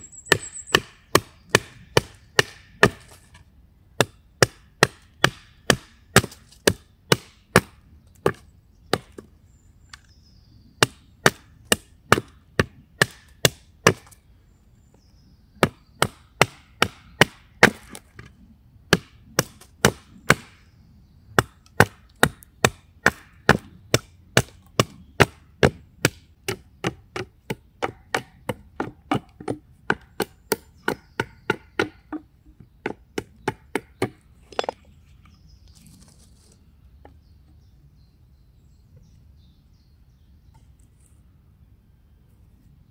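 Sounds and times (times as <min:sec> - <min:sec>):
hatchet chopping wood: 0:00.3 - 0:03.4, 0:04.0 - 0:09.3, 0:10.8 - 0:14.2, 0:15.6 - 0:18.2, 0:18.9 - 0:20.7, 0:21.4 - 0:34.8.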